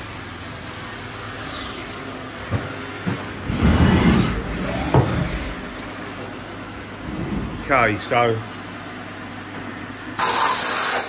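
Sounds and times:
milling machine spindle whine: 0.0s - 8.6s
loud rushing sliding noise: 3.4s - 6.2s, 6.8s - 8.3s.

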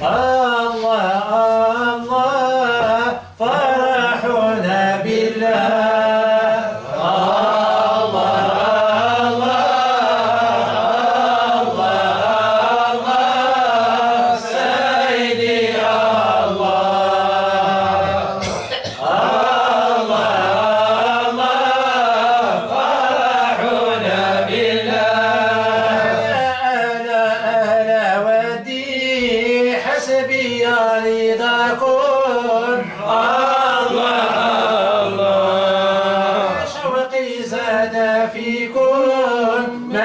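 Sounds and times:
man chanting unaccompanied: 0.0s - 40.0s.

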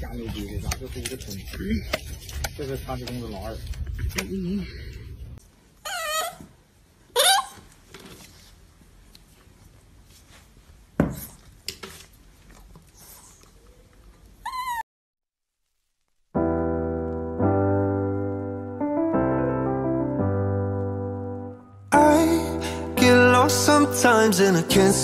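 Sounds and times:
dog whining yelps: 5.8s - 7.7s, 14.4s - 14.8s
piano music: 16.4s - 25.0s.

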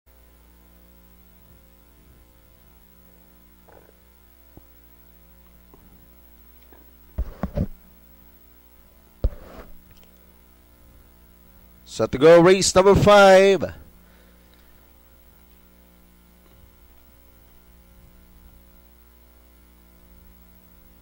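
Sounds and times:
electrical mains hum: 0.1s - 21.0s.

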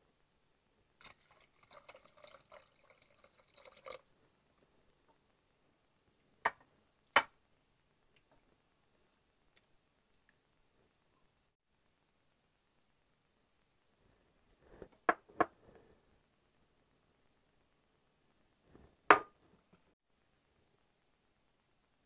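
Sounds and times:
water pouring into a pot: 1.0s - 4.1s.

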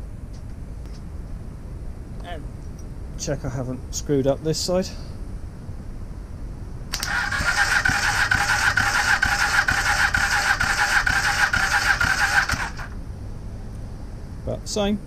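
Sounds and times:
starter motor whine with chugging: 6.9s - 13.0s.

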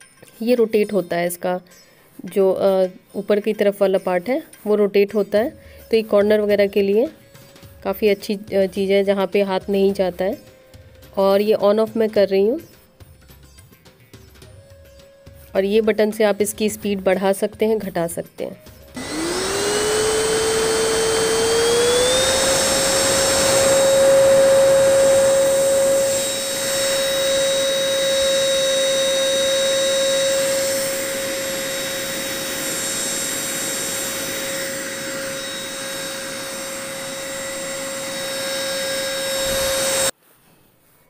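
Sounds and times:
vacuum cleaner motor whine: 19.0s - 40.1s.

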